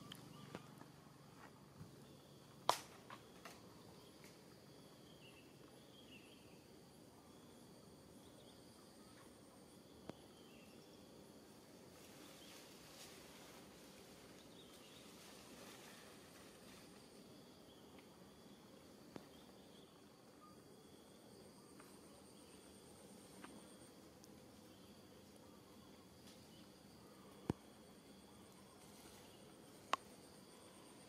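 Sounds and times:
faint high insect drone: 0.0 - 31.0
faint high chirps: 17.7 - 23.9.

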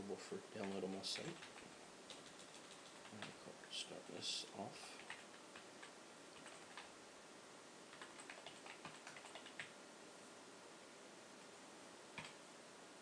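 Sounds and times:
low steady hiss: 0.0 - 13.0
typing on keyboard: 0.6 - 3.4, 5.0 - 6.9, 7.9 - 9.7, 12.2 - 12.4.

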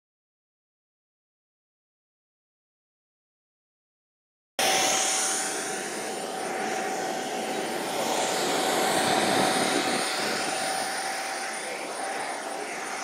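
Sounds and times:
model airplane engine running: 4.6 - 13.0.

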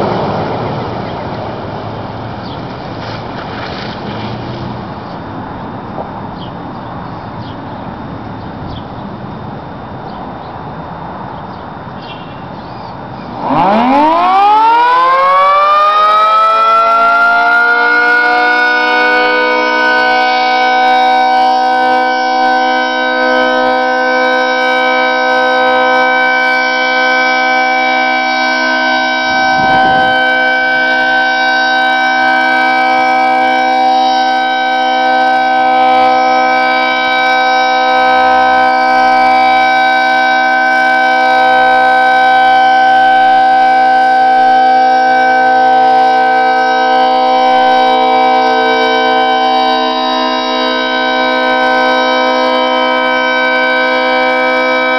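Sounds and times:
two-tone warning siren: 0.0 - 3.2, 9.7 - 54.9
steady rushing noise: 0.0 - 6.1, 29.4 - 30.5.

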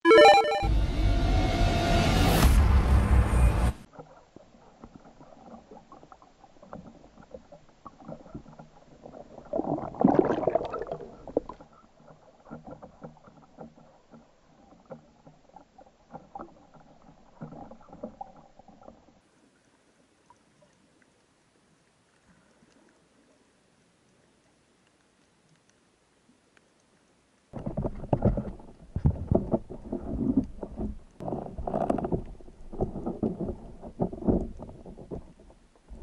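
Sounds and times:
sea water sloshing and splashing: 3.9 - 23.5, 27.6 - 36.0.

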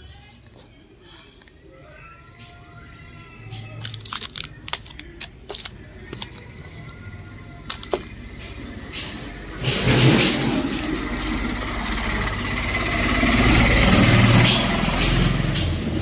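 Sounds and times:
faint background music: 0.0 - 14.2
plastic wrappers crinkling: 3.5 - 8.2, 9.8 - 12.3.

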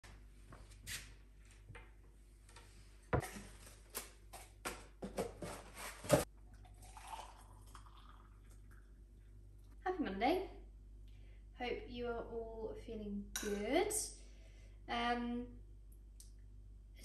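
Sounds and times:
liquid pouring into mug: 6.5 - 9.0.

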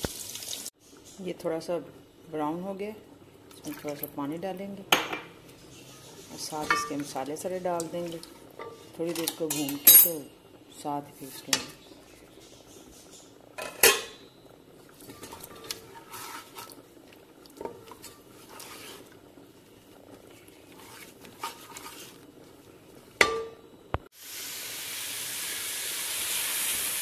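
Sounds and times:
spices sizzling in hot oil: 0.0 - 1.4, 2.5 - 27.0
wooden spoon scraping metal pot: 5.5 - 10.2, 11.0 - 11.9, 15.0 - 19.3, 20.0 - 22.7
spoon knocking against pot: 6.6 - 7.2, 23.2 - 23.6.

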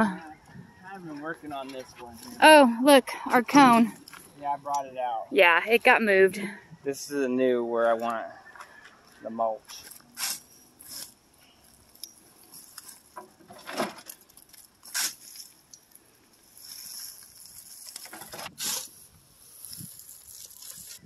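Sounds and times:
loud scoops of mulch: 12.5 - 15.6, 16.5 - 21.0
fork crunching wood chips: 16.6 - 21.0.

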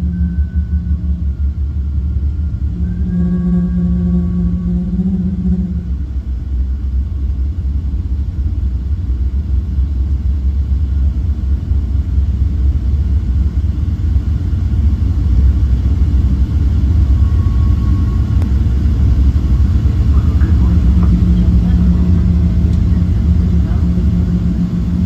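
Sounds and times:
airplane cabin rumble: 0.0 - 25.0.

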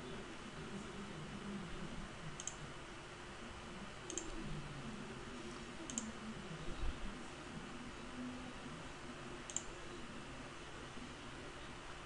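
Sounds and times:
computer mouse clicking: 2.4 - 2.7, 4.1 - 4.4, 5.8 - 6.2, 9.5 - 9.8.

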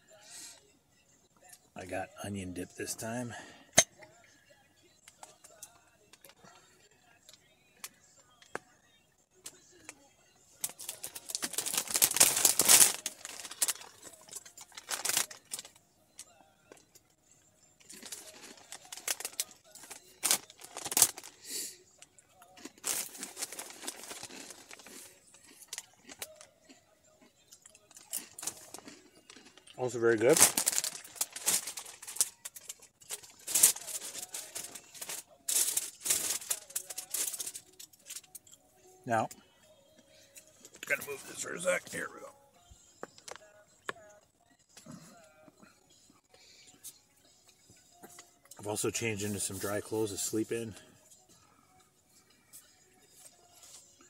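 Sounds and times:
plastic packaging crinkling: 10.6 - 15.7, 17.9 - 21.4, 22.6 - 25.1, 30.2 - 38.4.

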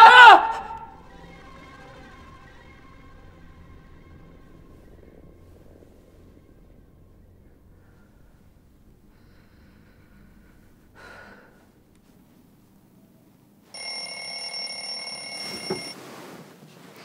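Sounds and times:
alarm clock ringing: 13.7 - 16.0.

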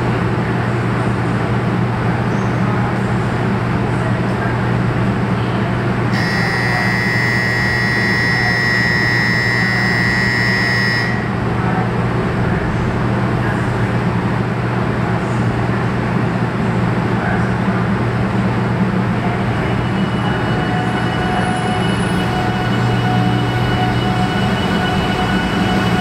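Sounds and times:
train low hum: 0.0 - 26.0
electronic departure buzzer: 6.2 - 11.4.

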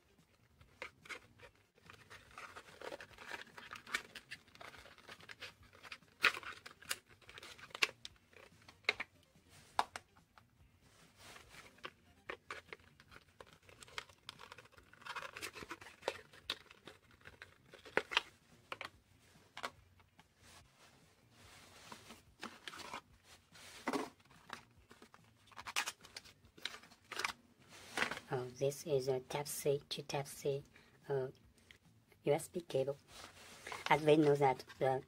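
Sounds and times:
cardboard rustling and scraping: 0.8 - 7.8, 21.4 - 28.3.

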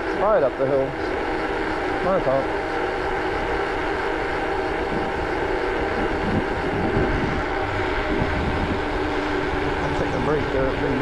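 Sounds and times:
wind buffeting microphone: 2.7 - 11.0.

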